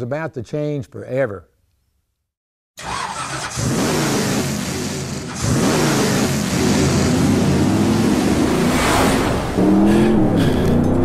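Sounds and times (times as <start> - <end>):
race car engines revving: 2.8 - 11.0.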